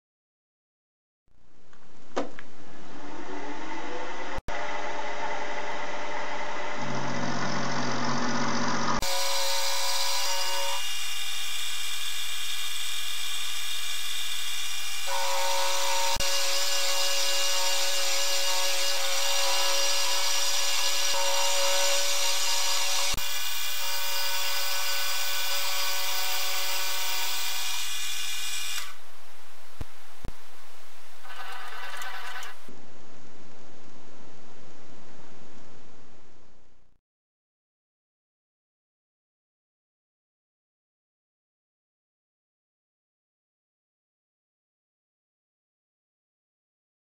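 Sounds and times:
milling machine whine: 2.8s - 29.0s, 31.2s - 32.7s.

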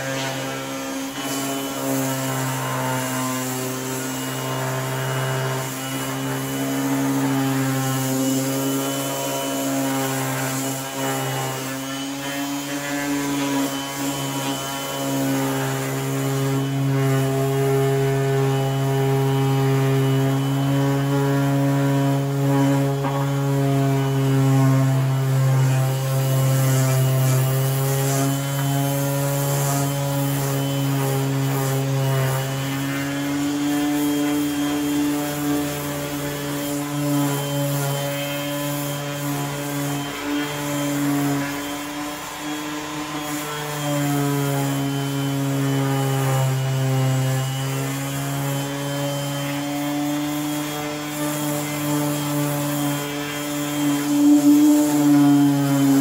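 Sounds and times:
orbital sander on plastic: 0.0s - 56.0s.

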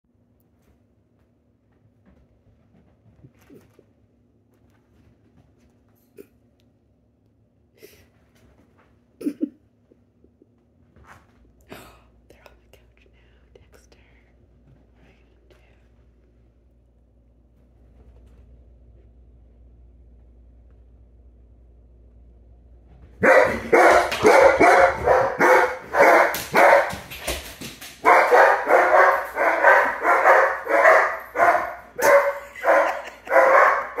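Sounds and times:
small paws tapping and rustling: 0.2s - 6.8s, 8.0s - 9.2s, 9.8s - 11.7s, 13.8s - 19.2s, 22.8s - 34.0s
dog barking loudly: 23.2s - 27.1s, 28.0s - 34.0s.

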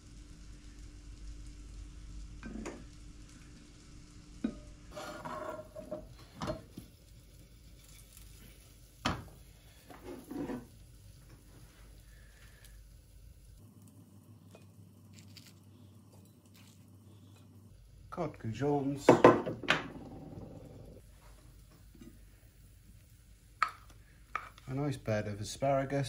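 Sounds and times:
food sizzling in a pan: 0.0s - 26.0s
utensil scraping and knocking pan: 4.4s - 6.6s, 9.9s - 10.7s.

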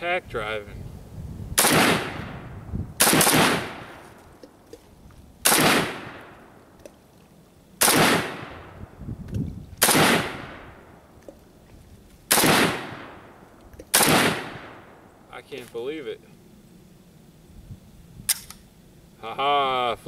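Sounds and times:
rifle shots: 1.6s - 2.4s, 3.0s - 4.0s, 5.4s - 6.5s, 7.8s - 8.8s, 9.8s - 10.9s, 12.3s - 15.0s.

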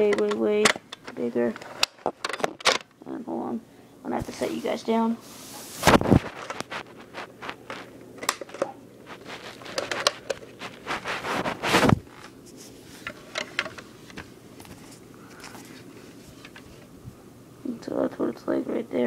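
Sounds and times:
device handling clicks and rubs: 5.8s - 16.9s.

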